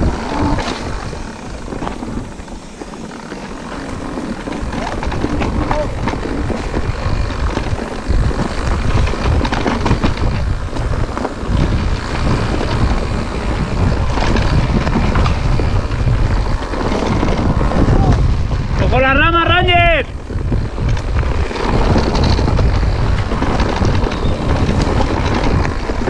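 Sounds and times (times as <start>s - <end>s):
bike knocks and rattles: 0.0s - 26.0s
tyres rumbling on rough trail: 0.0s - 26.0s
wind buffeting microphone: 0.0s - 26.0s.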